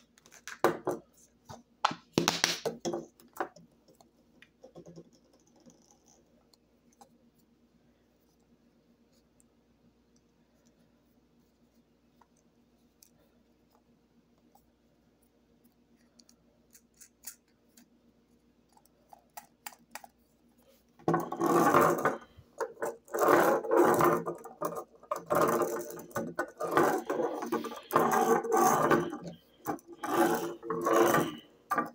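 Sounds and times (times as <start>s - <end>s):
faint clicks of toy handling: 12.2s - 21.0s
toy mechanism rattling and grinding: 21.1s - 31.9s.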